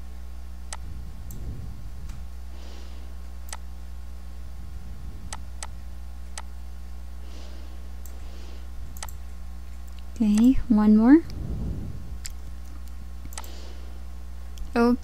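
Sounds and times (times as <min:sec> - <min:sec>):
low electrical hum: 0:00.0 - 0:15.0
computer mouse clicking: 0:05.3 - 0:06.5, 0:08.9 - 0:09.2, 0:09.9 - 0:10.6, 0:13.3 - 0:13.6.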